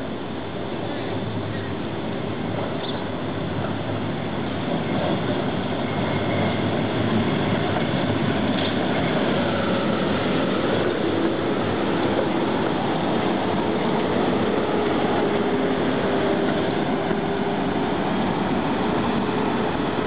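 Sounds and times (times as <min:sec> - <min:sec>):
tram wheels rumbling on rails: 0:00.0 - 0:20.0.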